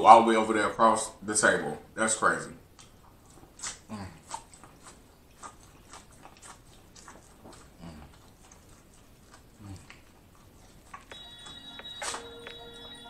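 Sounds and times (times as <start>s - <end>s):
crunchy chewing of corn: 2.7s - 13.0s.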